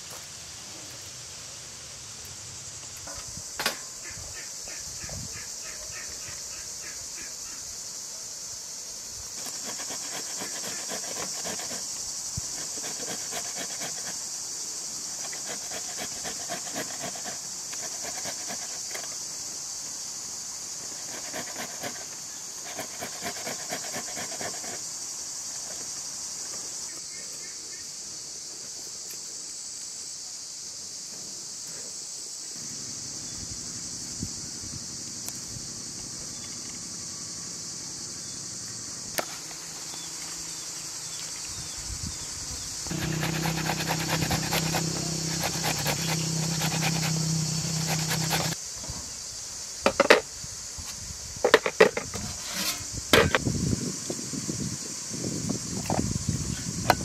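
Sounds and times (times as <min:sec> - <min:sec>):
high-pitched insect chorus: 0:00.0 - 0:57.0
tomato rasping on metal grater: 0:09.4 - 0:11.9, 0:42.9 - 0:48.6.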